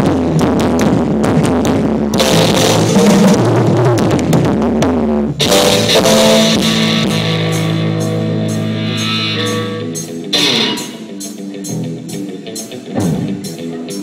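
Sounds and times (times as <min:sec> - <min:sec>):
drum beat: 0:00.0 - 0:08.7
live pop-rock band playing: 0:02.1 - 0:03.9, 0:05.4 - 0:14.0
electric guitar: 0:02.2 - 0:04.2, 0:05.4 - 0:14.0.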